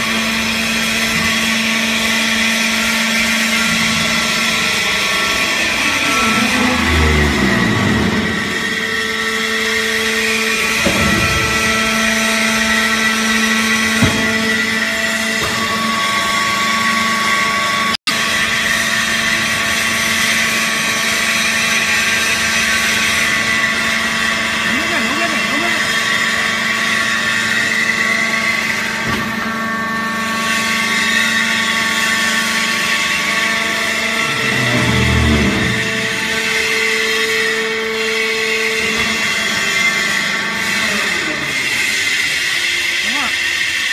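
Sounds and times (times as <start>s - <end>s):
hydraulic pump motor whining: 1.0s - 16.9s, 31.4s - 39.4s
deep motor hum: 5.2s - 9.6s, 33.7s - 36.8s.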